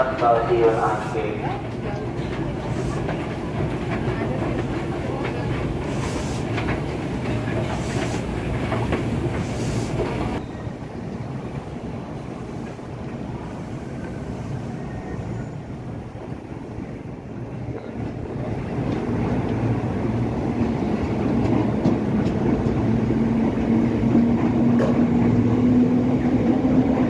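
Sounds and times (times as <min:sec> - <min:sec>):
train rumbling along platform: 0:00.0 - 0:27.0.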